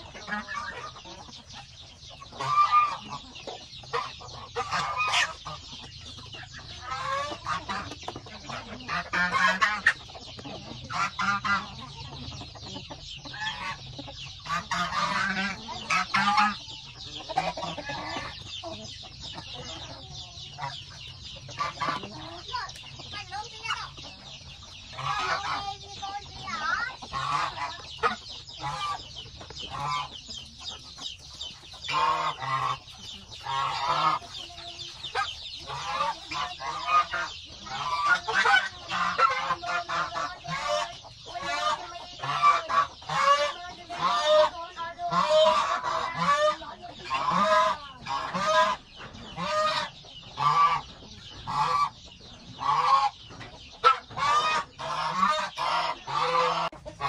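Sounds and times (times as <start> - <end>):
geese honking: 0.0 - 57.0.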